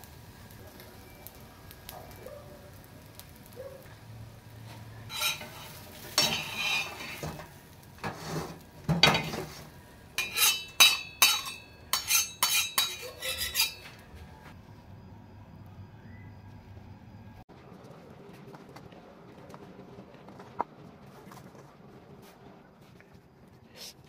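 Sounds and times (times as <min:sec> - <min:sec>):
metal turner scraping griddle: 0:04.6 - 0:14.4
metal clinking on steel plate: 0:05.1 - 0:07.4, 0:10.2 - 0:14.0.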